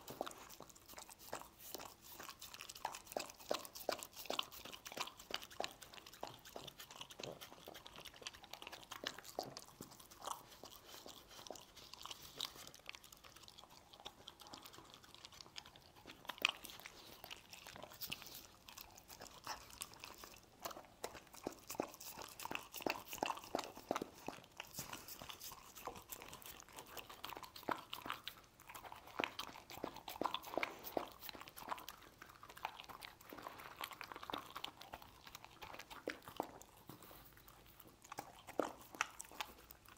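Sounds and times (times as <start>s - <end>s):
dog chewing and crunching food: 0.0s - 39.9s.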